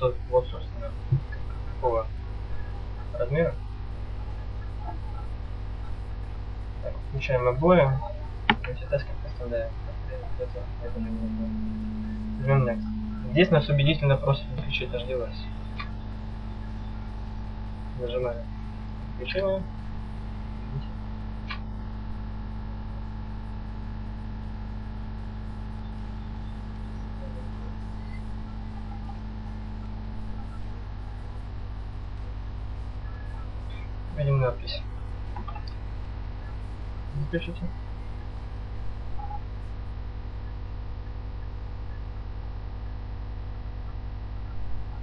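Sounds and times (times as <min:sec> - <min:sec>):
electrical mains hum: 0:00.0 - 0:45.0
faint short tone: 0:10.1 - 0:19.4.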